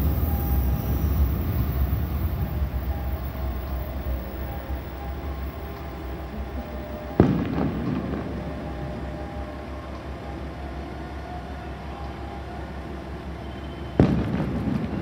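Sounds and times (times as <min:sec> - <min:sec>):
sharp ringing burst: 0:00.0 - 0:09.8
diesel railcar idling: 0:00.0 - 0:15.0.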